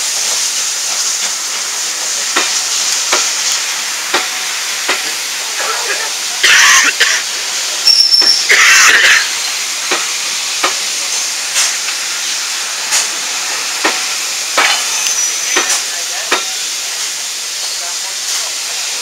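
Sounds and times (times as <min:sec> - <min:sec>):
steam hissing: 0:00.0 - 0:19.0
train coaches clicking and knocking: 0:00.0 - 0:19.0.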